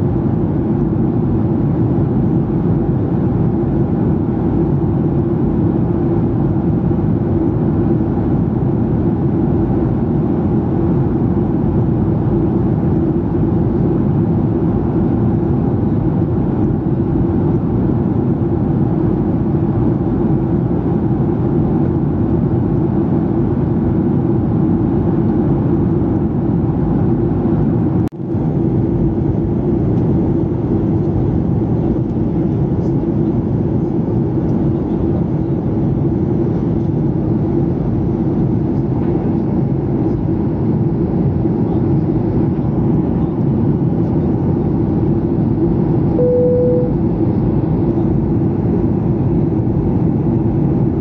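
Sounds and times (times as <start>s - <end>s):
airplane cabin engine drone: 0.0s - 51.0s.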